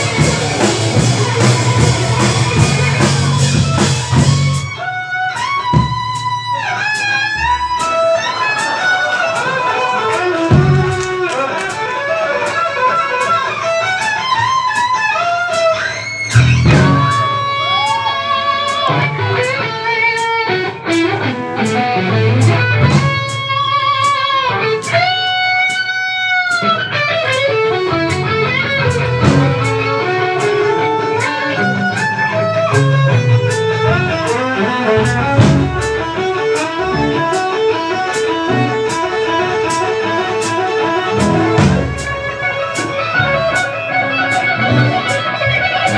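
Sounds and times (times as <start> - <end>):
bass: 0.0 - 8.4, 10.4 - 11.4, 15.6 - 19.8, 20.5 - 23.9, 26.6 - 45.9
electric guitar lead lines: 0.0 - 45.9
steady drum beat: 0.0 - 45.9.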